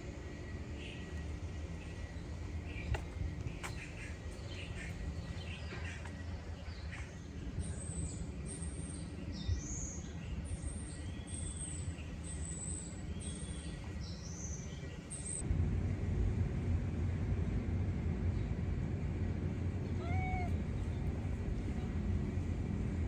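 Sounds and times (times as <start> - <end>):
low outdoor rumble: 0.0 - 23.0
small birds chirping: 0.4 - 15.4.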